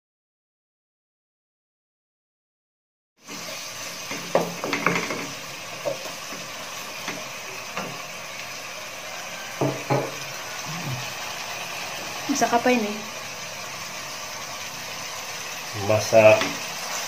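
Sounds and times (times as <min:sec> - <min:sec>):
frying hiss: 0:03.2 - 0:17.0
spatula scraping a wok: 0:16.4 - 0:17.0.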